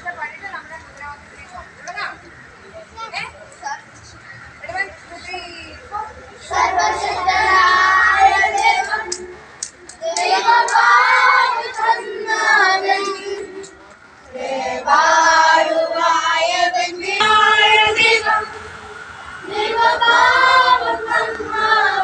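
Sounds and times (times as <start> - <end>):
children singing: 6.4 - 9.4, 10.0 - 13.7, 14.3 - 22.0.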